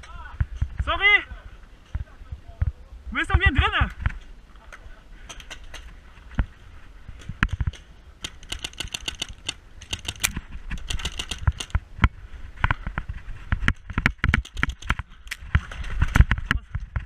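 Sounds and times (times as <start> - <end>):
heavier cracks: 7.4 - 11.8
paintball markers firing: 7.4 - 11.8, 14.0 - 15.4.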